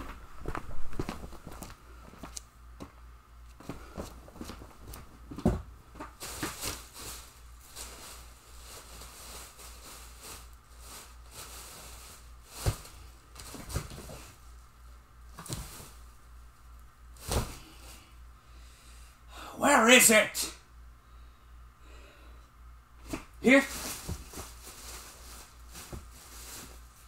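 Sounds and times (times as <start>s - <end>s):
rummaging with rustling and knocks: 0.0s - 2.4s, 3.6s - 14.4s, 15.3s - 16.1s, 23.0s - 27.0s
low steady hum: 0.0s - 27.0s.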